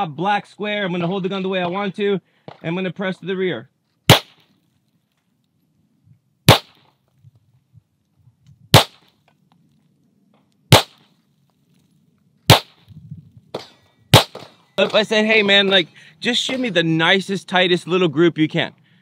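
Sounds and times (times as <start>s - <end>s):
pistol shots: 4.1s - 4.4s, 6.5s - 6.9s, 8.7s - 9.1s, 10.7s - 11.1s, 12.5s - 12.8s, 13.6s - 14.6s.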